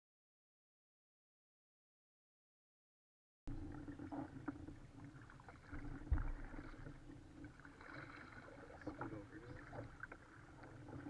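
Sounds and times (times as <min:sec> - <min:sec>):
water sloshing against hull: 0:03.5 - 0:11.0
paddle dipping in water: 0:03.6 - 0:11.0.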